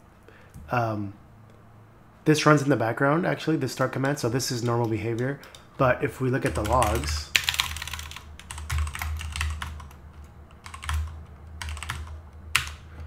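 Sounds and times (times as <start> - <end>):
computer keyboard typing: 4.0 - 5.7, 6.4 - 13.0.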